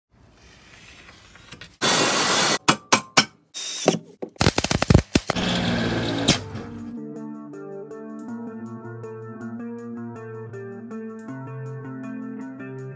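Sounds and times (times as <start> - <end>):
steady workshop tool noise: 0.4 - 6.8.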